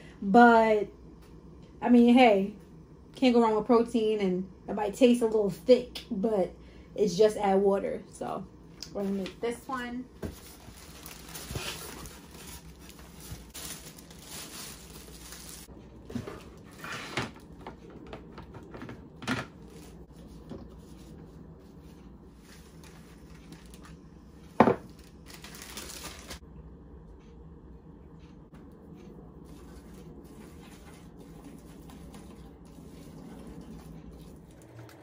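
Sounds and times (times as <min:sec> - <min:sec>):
packaging crinkling: 0:10.4 - 0:15.7, 0:22.5 - 0:24.0, 0:24.8 - 0:26.4.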